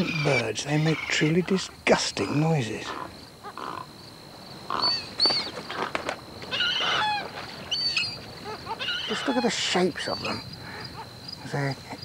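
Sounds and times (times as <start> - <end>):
egrets giving rough calls: 0.0 - 3.9, 5.7 - 7.4, 8.4 - 11.2.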